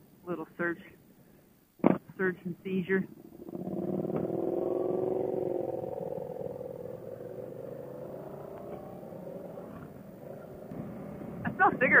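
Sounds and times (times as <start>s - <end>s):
motorcycle engine running: 3.0s - 12.0s.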